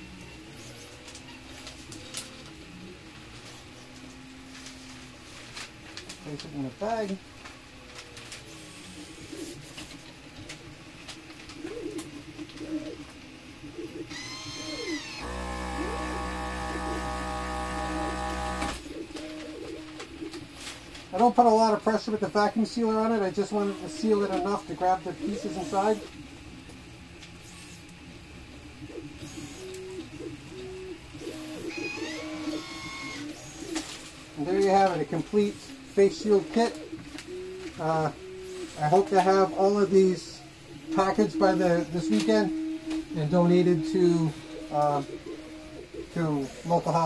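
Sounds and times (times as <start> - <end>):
stepper motors humming: 11.7 - 47.0
high pump whine: 14.1 - 18.9
vacuum sealer pump humming: 14.1 - 19.0
pitch-sweeping motor tones: 14.2 - 18.8.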